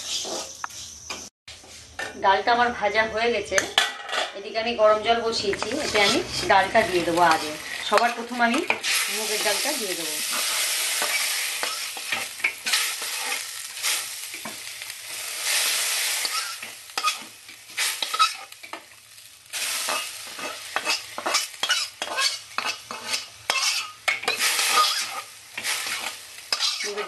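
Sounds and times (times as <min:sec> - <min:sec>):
steel spatula scraping pan: 0:05.4 - 0:14.7, 0:15.4 - 0:18.8, 0:19.6 - 0:27.0
hissing of hot pan: 0:05.6 - 0:27.0.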